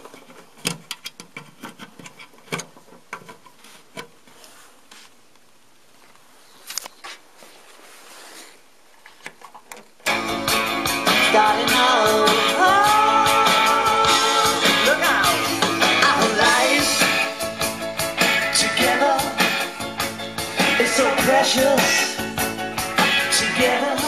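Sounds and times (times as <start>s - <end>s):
guitar lines: 10.1s - 24.0s
person singing: 10.1s - 24.0s
rock song: 10.1s - 24.0s
steady drum beat: 10.4s - 24.0s.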